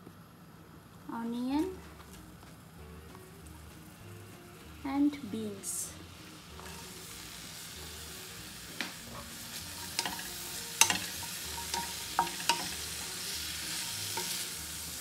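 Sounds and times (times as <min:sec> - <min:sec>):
vegetables sizzling in a pan: 0:01.1 - 0:15.0
spatula knocking against pan: 0:09.8 - 0:12.8.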